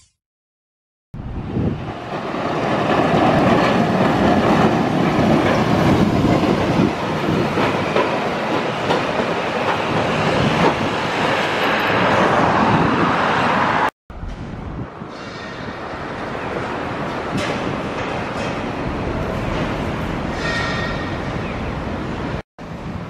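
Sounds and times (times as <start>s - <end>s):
road traffic noise: 1.2s - 23.0s
tram wheels clacking on rail joints: 1.9s - 12.5s, 15.1s - 21.6s.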